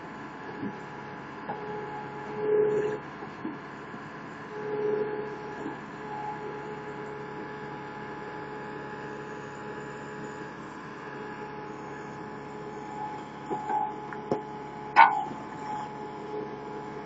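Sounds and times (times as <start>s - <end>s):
loader engine humming whine: 0.0s - 17.0s.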